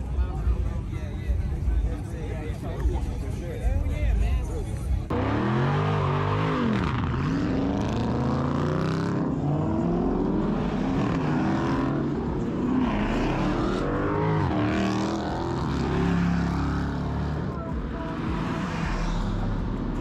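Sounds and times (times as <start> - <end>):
car engines revving: 4.8 - 20.0.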